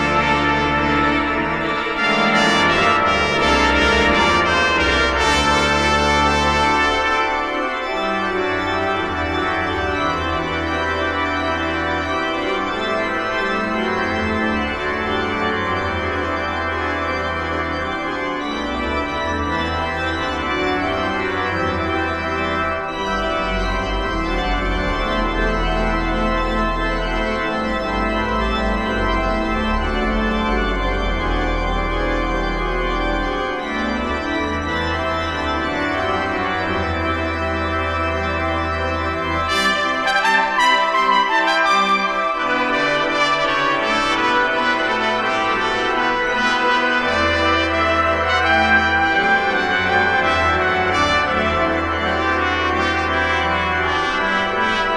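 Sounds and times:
organ playing sustained chords: 0.0 - 54.9.

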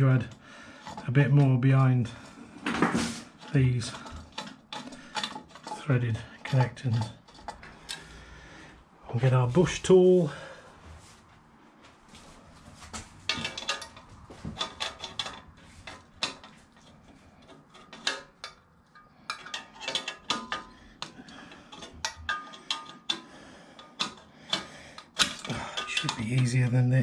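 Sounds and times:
metallic clinks and taps: 13.3 - 26.5.

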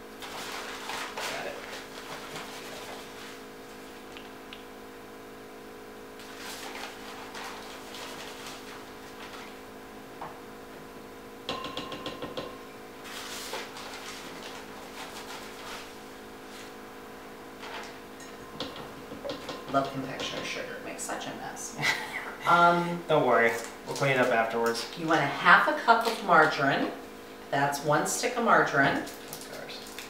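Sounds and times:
cup knocking on glass bowl: 11.5 - 12.6, 18.6 - 20.5
measuring cup scraping plastic bag: 13.0 - 16.0.

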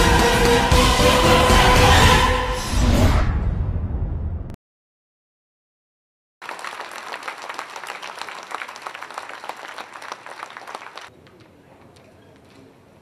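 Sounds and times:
audience applauding: 6.4 - 11.1.

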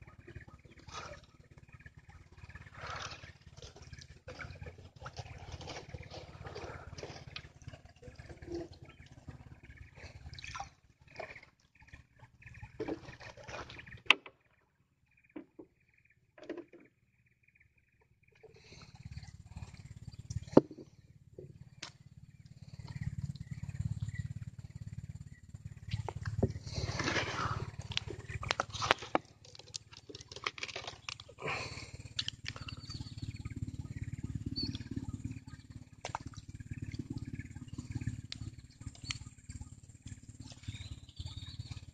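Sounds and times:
paddle splashing in water: 0.3 - 1.6, 2.3 - 14.4, 25.8 - 33.0.

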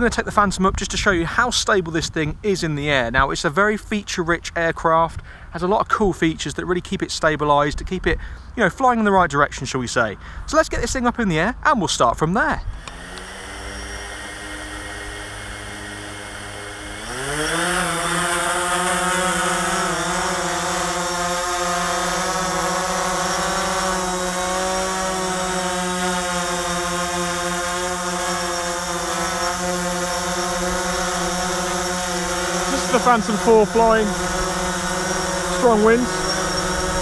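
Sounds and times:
drone propellers humming: 12.8 - 37.0.

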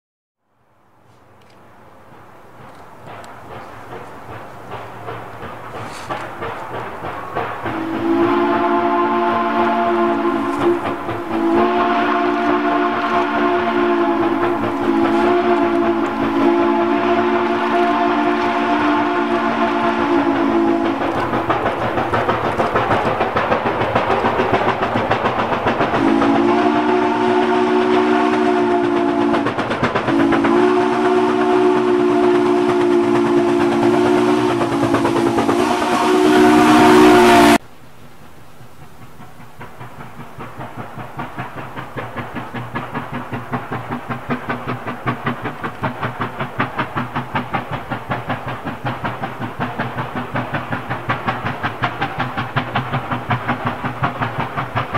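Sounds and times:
steam locomotive exhaust chuffing: 0.9 - 54.9
steam locomotive whistle: 7.6 - 21.6, 25.9 - 37.6.

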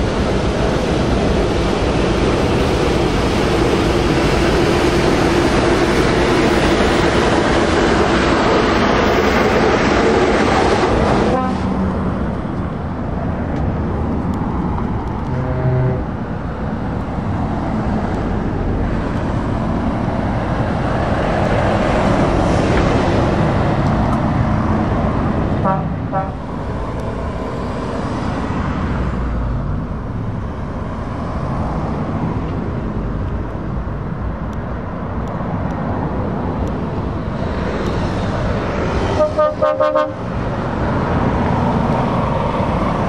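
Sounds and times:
stream of passing traffic: 0.0 - 43.0.

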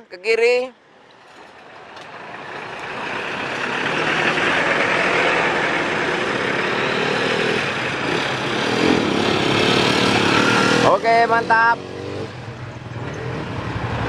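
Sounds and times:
traffic over level crossing: 0.2 - 14.0
low engine drone: 1.6 - 10.8.

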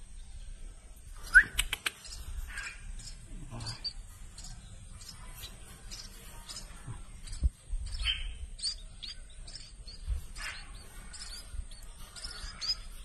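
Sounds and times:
nestling birds begging cheeps: 1.2 - 13.0.

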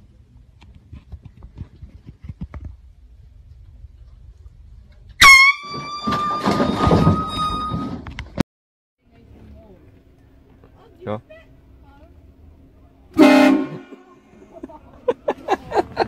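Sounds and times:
loud air horn blast: 5.2 - 6.5, 13.1 - 14.2.

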